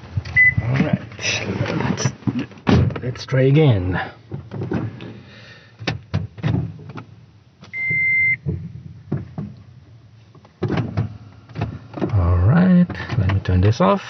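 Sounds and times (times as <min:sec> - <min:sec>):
electronic car beep: 0:00.4 - 0:00.6, 0:07.8 - 0:08.4
clicks and knocks in car cabin: 0:05.8 - 0:07.1, 0:07.8 - 0:09.7, 0:10.3 - 0:12.2, 0:12.8 - 0:13.6.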